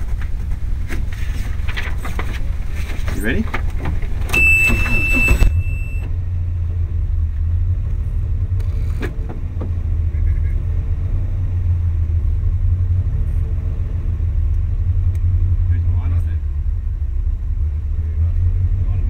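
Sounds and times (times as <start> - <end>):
car engine at low revs: 0.0 - 19.0
high beep: 4.3 - 6.2.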